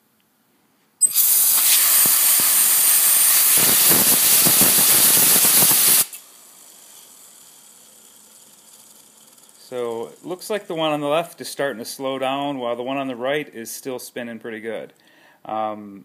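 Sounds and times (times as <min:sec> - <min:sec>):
compressed air hissing: 0:01.0 - 0:07.1
gears whirring: 0:01.0 - 0:10.5.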